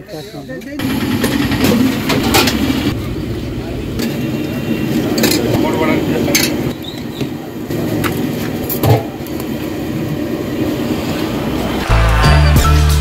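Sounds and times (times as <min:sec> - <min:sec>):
passing traffic: 0:00.8 - 0:13.0
music with heavy bass beat: 0:11.8 - 0:13.0.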